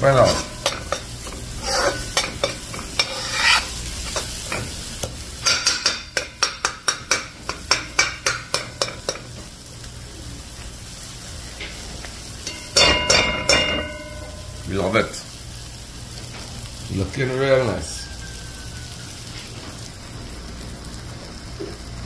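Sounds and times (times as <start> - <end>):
metal spoon scraping pot: 0.0 - 3.8
paste sizzling in oil: 0.0 - 22.0
pot ringing from knocks: 12.5 - 14.5.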